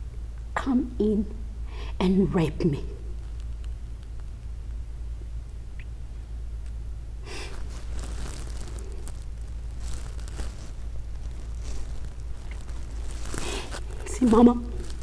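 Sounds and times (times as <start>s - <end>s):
steady low hum: 0.0s - 15.0s
sharp breaths and sniffs: 13.0s - 14.0s.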